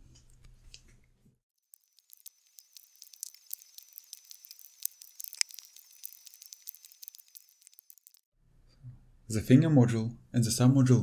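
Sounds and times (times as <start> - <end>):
soldering crackles and clicks: 1.6 - 8.3.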